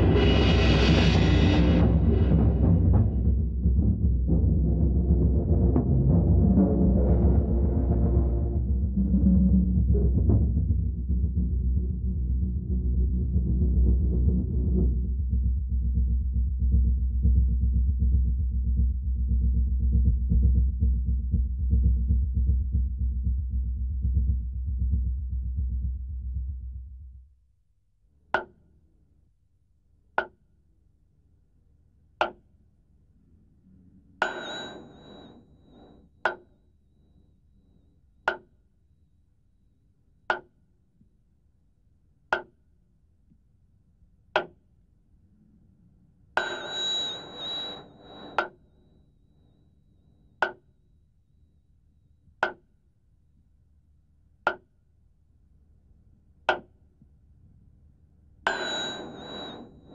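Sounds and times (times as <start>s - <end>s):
high ringing tone: 34.2s - 35.8s, 46.4s - 48.6s, 58.5s - 59.9s.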